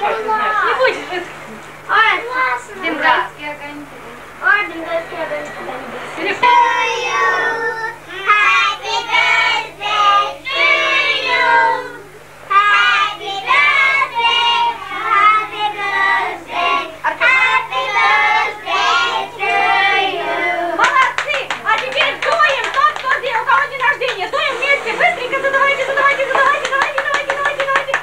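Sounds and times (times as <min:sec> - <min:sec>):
children singing: 0:06.2 - 0:20.8.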